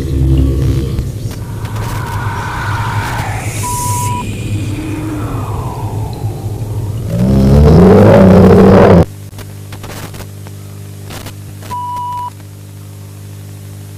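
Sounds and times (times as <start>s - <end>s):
distorted horror sound effect: 0.0s - 9.0s
tape static: 0.0s - 12.6s
electrical hum: 0.0s - 13.9s
short high beep: 3.6s - 4.3s.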